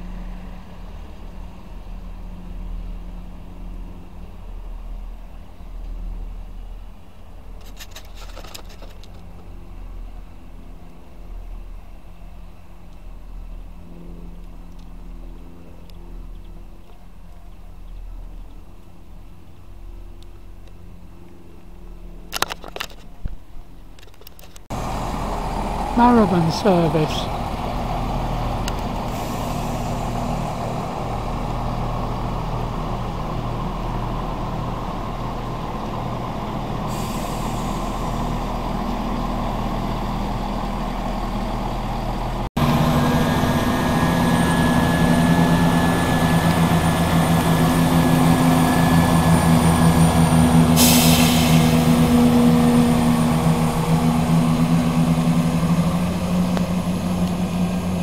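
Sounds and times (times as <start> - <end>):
diesel engines idling: 24.7 - 58.0
compressed air hiss: 50.7 - 51.8.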